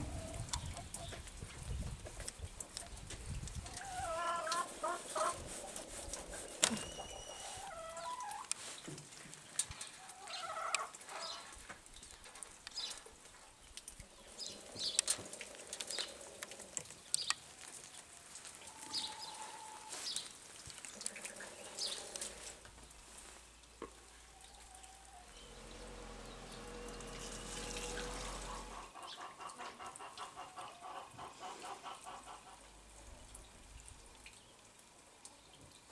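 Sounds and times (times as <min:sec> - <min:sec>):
chickens clucking: 0:00.0 - 0:08.6, 0:09.8 - 0:11.6, 0:24.6 - 0:32.8.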